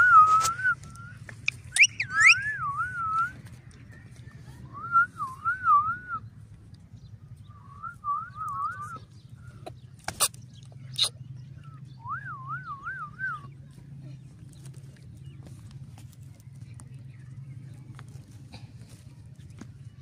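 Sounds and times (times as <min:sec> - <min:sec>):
warbling whistle: 0:01.7 - 0:03.2.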